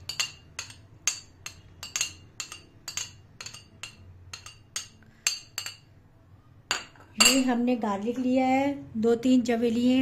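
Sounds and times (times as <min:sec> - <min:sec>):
metal spoon clinking on ceramic plate: 0:00.0 - 0:06.0, 0:06.7 - 0:07.6.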